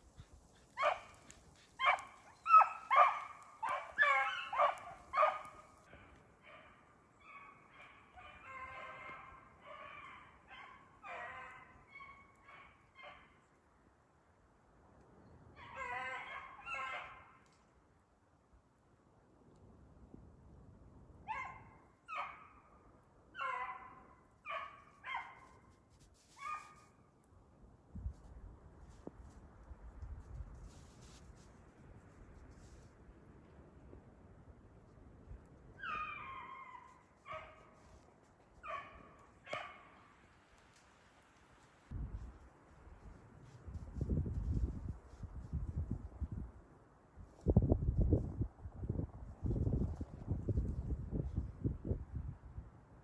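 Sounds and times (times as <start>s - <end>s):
hounds baying: 0.1s - 13.3s.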